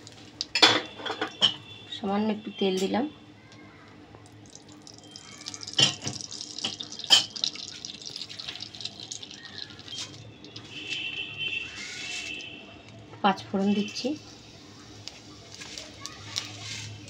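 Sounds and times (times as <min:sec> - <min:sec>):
hot oil sizzling: 0:00.0 - 0:01.6, 0:04.2 - 0:12.6, 0:13.3 - 0:17.0.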